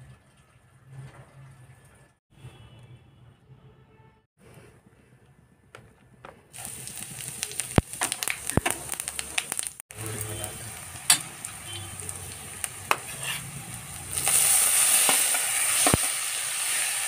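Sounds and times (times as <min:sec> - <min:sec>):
spices sizzling in hot oil: 0:06.5 - 0:17.0.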